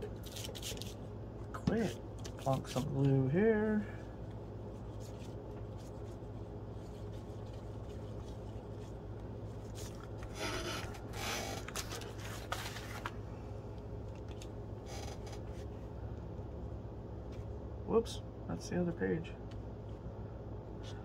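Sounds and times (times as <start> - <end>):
steady low hum: 0.0 - 21.0
paper rubbing and rustling: 0.2 - 1.0, 1.8 - 3.2, 4.6 - 13.2.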